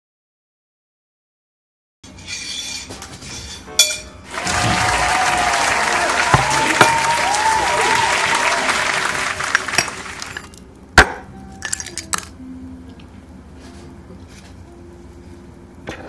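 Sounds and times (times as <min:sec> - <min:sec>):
applause: 0:04.3 - 0:10.4.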